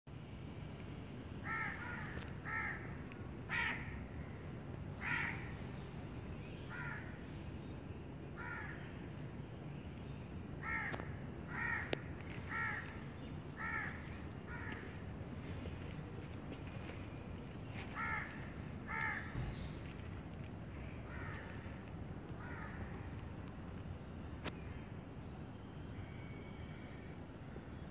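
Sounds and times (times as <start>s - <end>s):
low background rumble: 0.1s - 27.9s
crows cawing: 1.4s - 4.0s, 5.0s - 5.6s, 6.7s - 7.2s, 8.4s - 8.8s, 10.6s - 13.0s, 13.6s - 15.0s, 17.7s - 19.7s, 20.9s - 23.1s.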